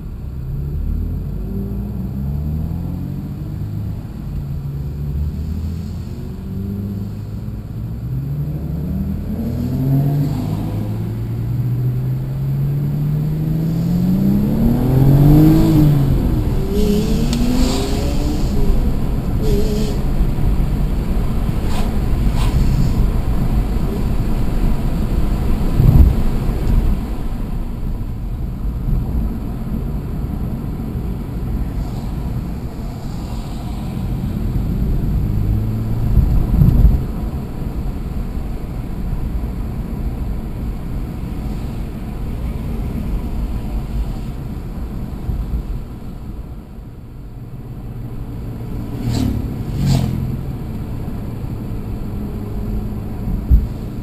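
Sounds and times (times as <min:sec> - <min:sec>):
car engine from inside cabin: 0:00.0 - 0:54.0
road and tyre rumble: 0:00.0 - 0:54.0.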